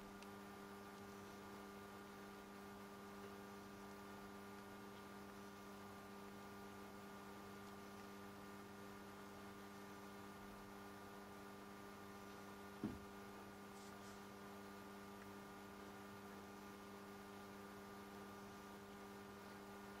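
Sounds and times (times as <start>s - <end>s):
faint electrical hum: 0.0s - 20.0s
short thump: 12.8s - 13.1s.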